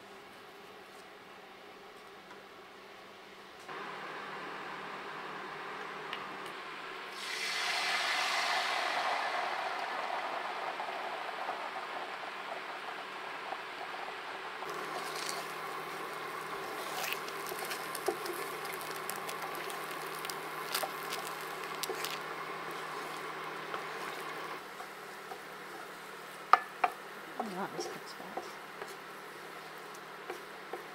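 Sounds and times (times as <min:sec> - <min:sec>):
egg sizzling in a skillet: 0:07.1 - 0:13.2, 0:14.6 - 0:30.9
wooden spatula scraping: 0:14.7 - 0:26.1.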